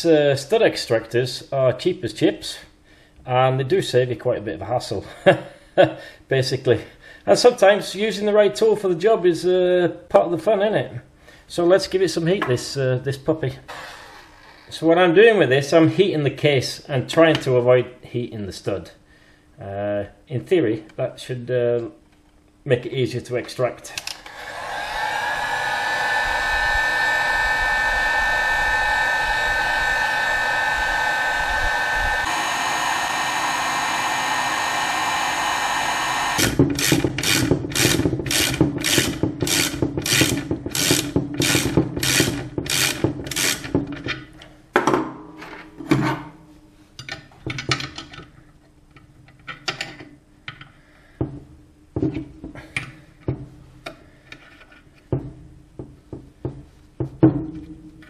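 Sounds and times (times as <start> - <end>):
heat gun blowing with whine: 13.7 - 14.7, 24.0 - 43.7
ratchet turning: 36.4 - 43.7
tools clicking and knocking on metal: 47.0 - 50.7.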